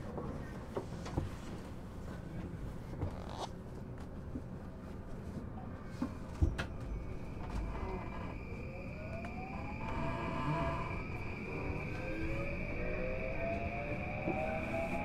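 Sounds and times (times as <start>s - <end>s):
train rumble: 4.0s - 15.0s
inverter high tone: 7.0s - 15.0s
traction motor whine rising: 7.0s - 15.0s.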